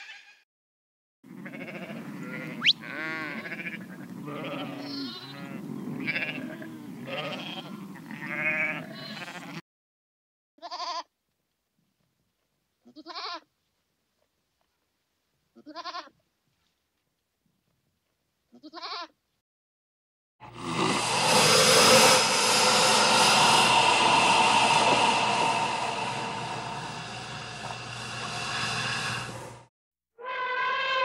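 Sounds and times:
animals bleating: 1.3s - 9.6s.

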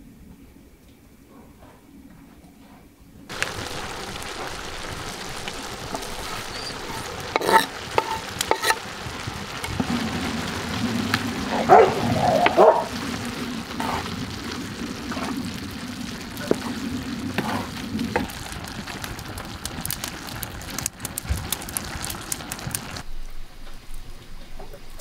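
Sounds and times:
minced meat sizzling in a pan: 3.3s - 23.0s.

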